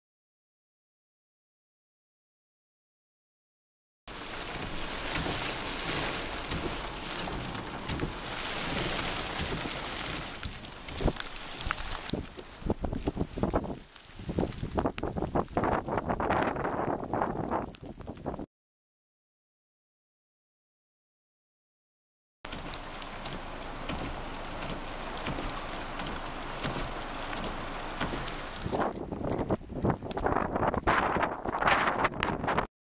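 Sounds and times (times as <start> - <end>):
light ticks and crackles: 4.1 - 18.4, 22.5 - 32.4
wind on microphone: 4.2 - 18.5, 23.3 - 32.7.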